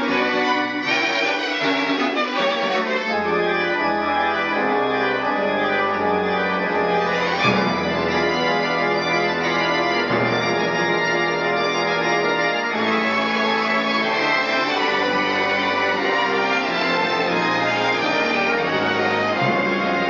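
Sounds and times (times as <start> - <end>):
pipe organ chords: 0.0 - 20.0
string orchestra: 0.0 - 20.0.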